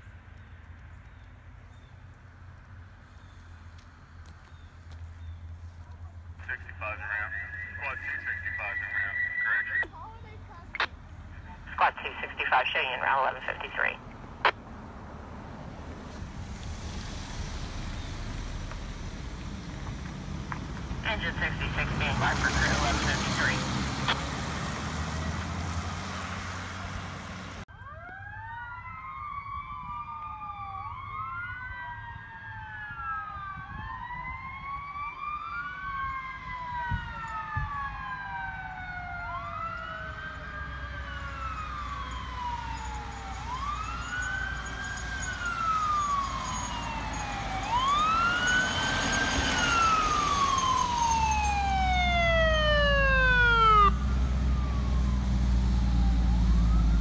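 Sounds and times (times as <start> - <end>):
heavy truck engine rumble: 4.5 - 27.7
fire engine sirens wailing: 6.2 - 14.6, 20.8 - 57.0.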